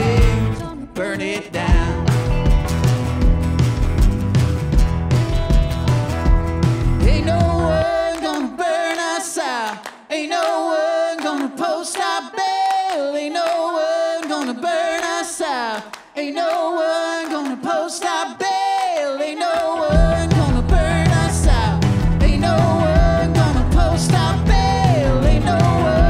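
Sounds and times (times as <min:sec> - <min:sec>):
voices singing in harmony: 0:00.0 - 0:02.1, 0:07.0 - 0:26.0
hand claps: 0:08.1 - 0:18.2.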